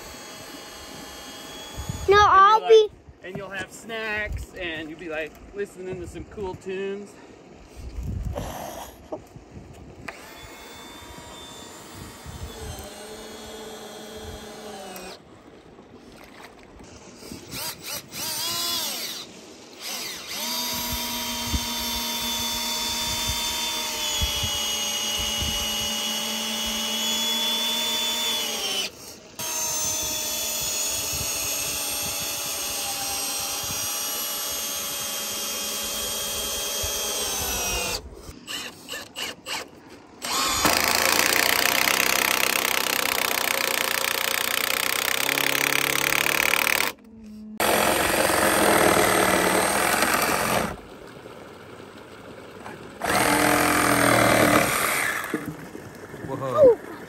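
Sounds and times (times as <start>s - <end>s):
cordless drill boring into wood: 0.0s - 2.5s, 10.1s - 15.2s, 17.2s - 50.8s, 53.0s - 55.5s.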